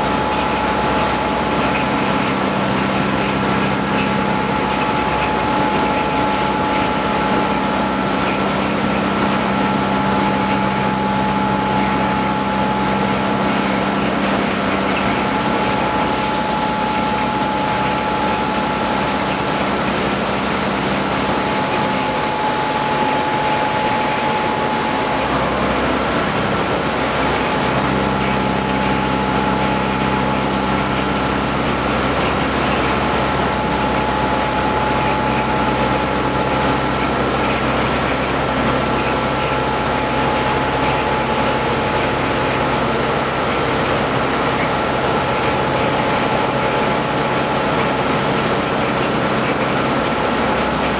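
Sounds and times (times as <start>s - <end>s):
higher whine: 0.0s - 42.2s
milling machine cutting whine: 0.0s - 50.9s
coolant spray hiss: 15.3s - 50.9s.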